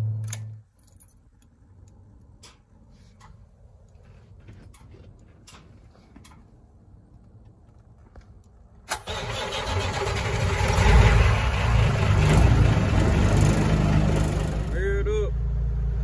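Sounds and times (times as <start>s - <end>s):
diesel engine cranking and running: 8.9s - 14.8s.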